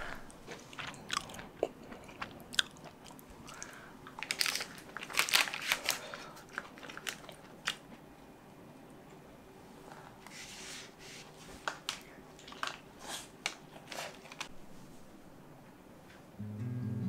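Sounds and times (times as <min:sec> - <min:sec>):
chewing crisp pizza crust: 0:00.5 - 0:05.1, 0:05.7 - 0:08.0.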